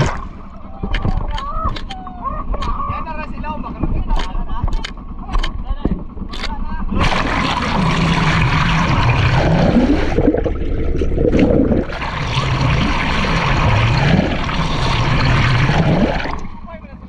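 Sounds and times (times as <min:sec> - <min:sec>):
water rushing underwater: 0:00.0 - 0:00.8, 0:06.9 - 0:16.7.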